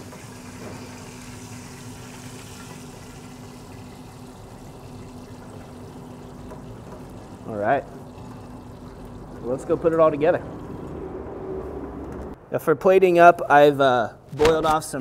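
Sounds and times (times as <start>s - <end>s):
oil sizzling in a skillet: 0.0s - 4.6s.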